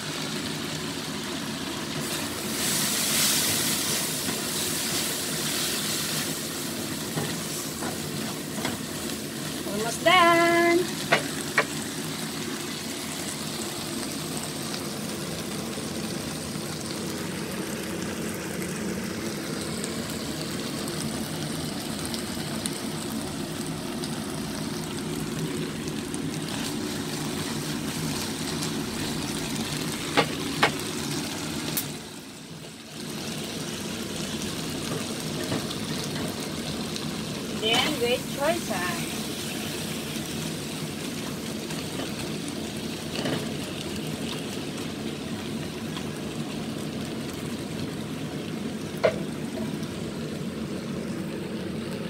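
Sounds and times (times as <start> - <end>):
chicken sizzling in oil: 0.0 - 52.0.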